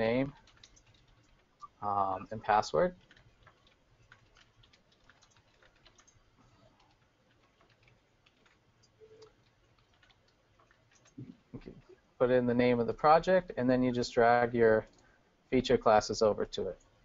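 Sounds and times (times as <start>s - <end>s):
computer keyboard typing: 0.0s - 11.3s.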